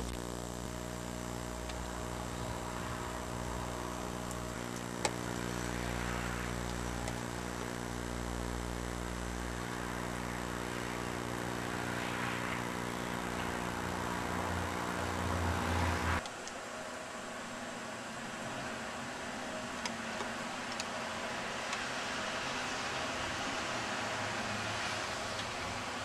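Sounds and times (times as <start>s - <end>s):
low motor hum: 0.0s - 16.2s.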